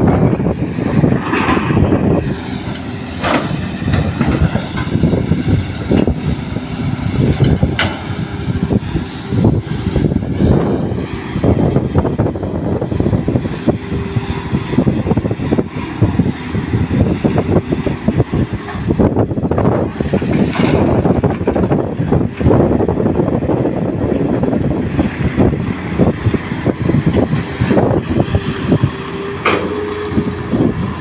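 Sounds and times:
diesel engines running: 0.0 - 31.0
knocks and clatter: 3.2 - 5.2, 20.2 - 21.8.

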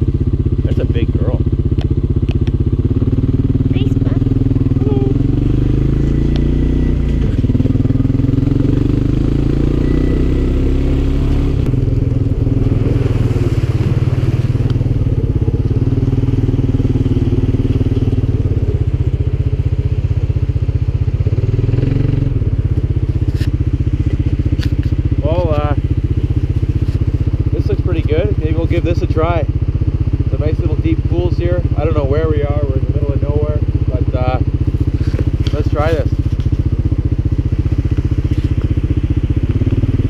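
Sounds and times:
quad bike engine running: 0.0 - 40.0.

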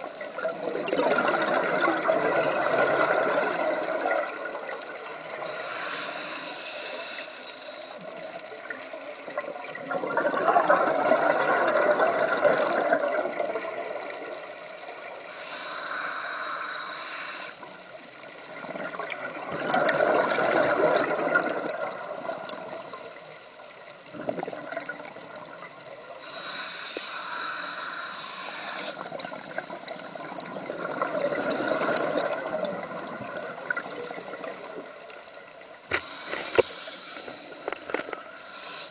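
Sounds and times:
exhaled bubbles burbling: 0.0 - 5.4, 9.2 - 14.4, 18.5 - 22.9, 24.1 - 25.7, 29.0 - 34.8
regulator inhale hiss: 3.4 - 8.4, 14.4 - 17.9, 22.9 - 23.6, 26.1 - 30.4, 35.9 - 38.9.

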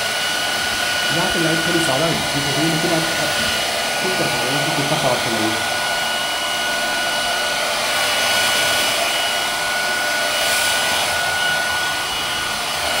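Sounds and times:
hair dryer running: 0.0 - 13.0.

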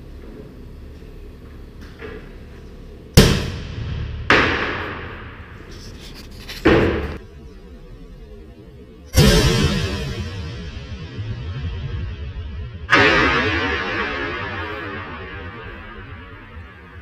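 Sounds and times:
air cannon bangs: 3.2 - 5.4.

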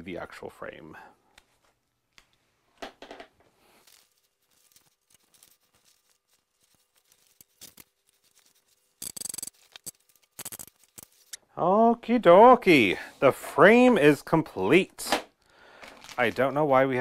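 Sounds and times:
cloth rustling: 3.5 - 11.4
velcro scratching: 3.6 - 11.4.

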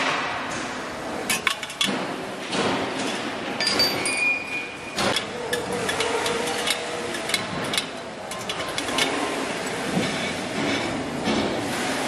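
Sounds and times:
workshop noise: 0.0 - 12.0
high metallic ring: 3.6 - 4.8.

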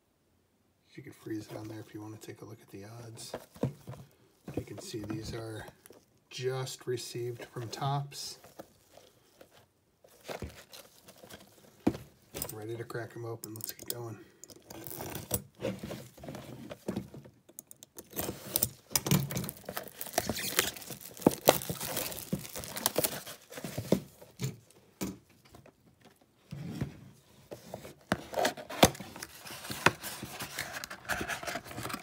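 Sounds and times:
plastic shrink-wrap tearing: 19.5 - 23.5.

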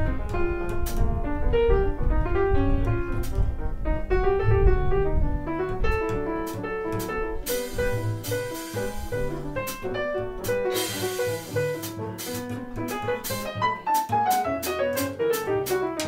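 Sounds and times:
grand piano playing jazz: 0.0 - 16.0
upright double bass: 0.0 - 16.0
cymbal strikes: 10.7 - 12.4.

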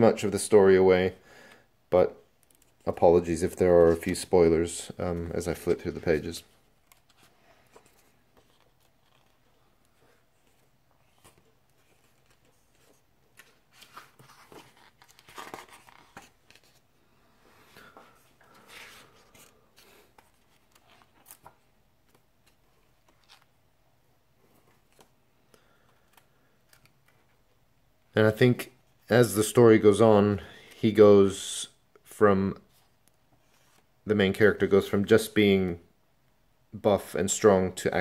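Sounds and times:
book pages turning: 5.2 - 16.9, 17.8 - 23.6, 24.5 - 27.4, 33.0 - 33.9.

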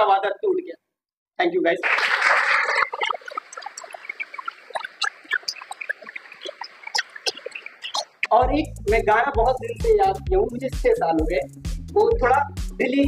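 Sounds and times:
audience applause: 1.8 - 3.2.

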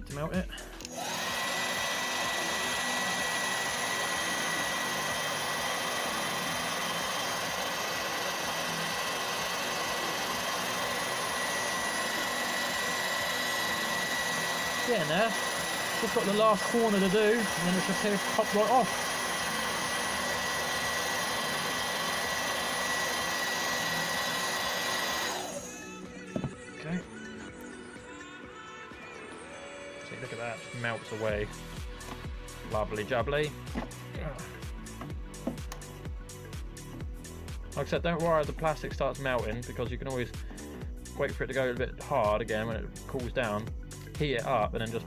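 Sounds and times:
heat gun blowing air: 0.6 - 26.5.

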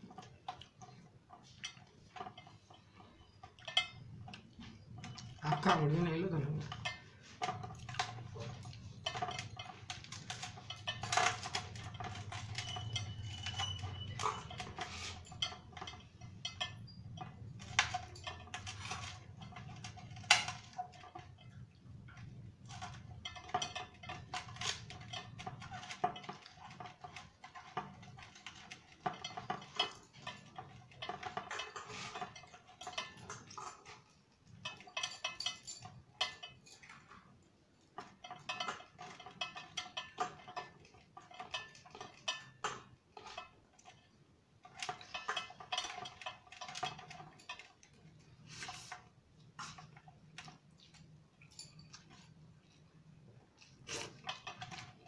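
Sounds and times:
steel plates clinking and scraping: 0.0 - 55.0.

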